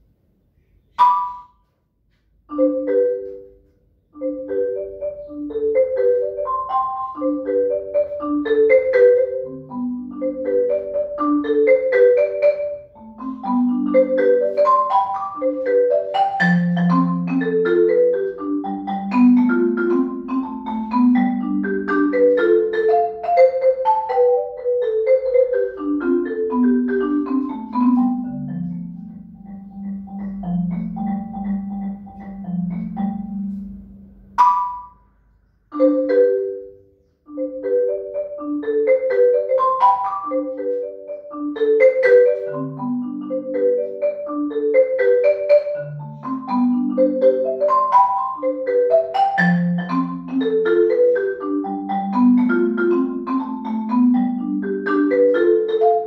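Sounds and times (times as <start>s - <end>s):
marimba played with mallets: 0.9s - 1.6s, 2.5s - 35.0s, 35.7s - 56.0s.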